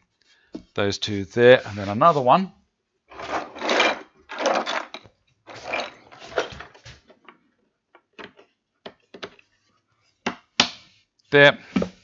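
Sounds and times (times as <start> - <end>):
board scraping across workbench: 3.1 - 4.8
light wooden clicks and knocks: 6.3 - 9.6.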